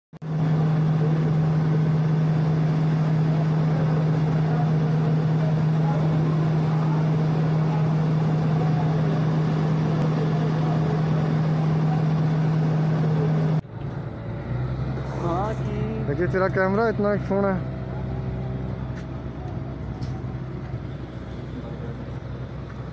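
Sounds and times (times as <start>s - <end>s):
machine drone: 0.2s - 22.9s.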